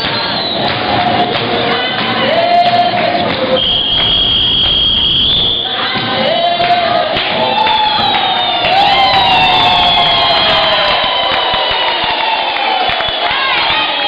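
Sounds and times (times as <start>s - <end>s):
voices singing together: 0.0s - 10.8s.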